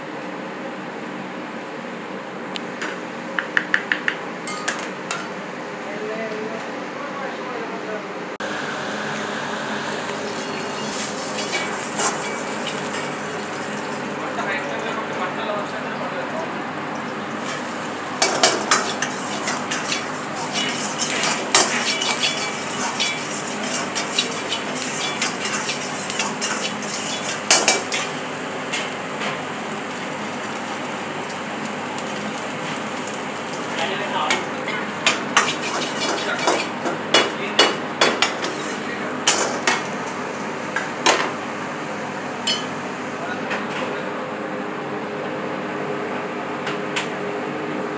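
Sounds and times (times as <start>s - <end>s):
food sizzling in hot oil: 8.9s - 14.6s, 16.9s - 37.1s
ladle scraping and knocking wok: 17.4s - 28.2s, 35.0s - 37.0s.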